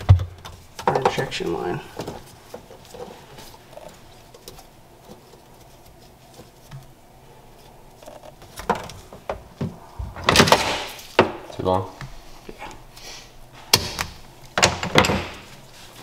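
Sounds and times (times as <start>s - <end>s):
gloved hand rustling: 0.5s - 9.9s.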